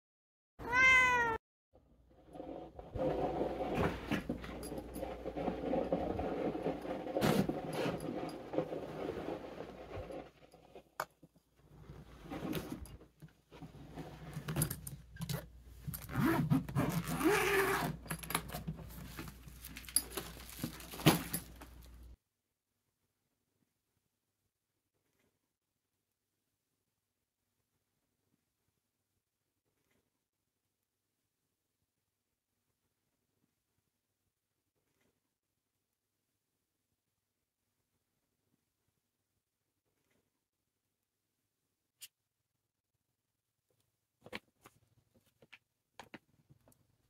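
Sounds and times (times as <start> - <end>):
cat meowing: 0.6 - 1.4
fabric suitcase rustling and clatter: 15.9 - 21.9.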